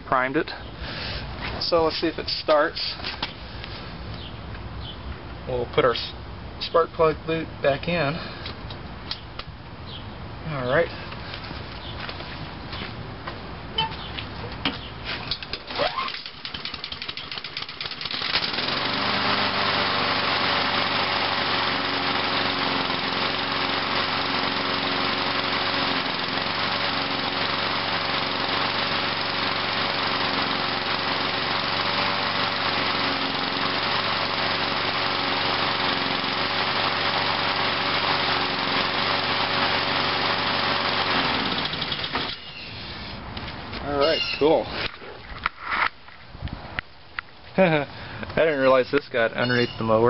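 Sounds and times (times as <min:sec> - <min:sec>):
mower engine pull-started: 0:15.2 - 0:43.1
mower engine running: 0:15.7 - 0:42.4.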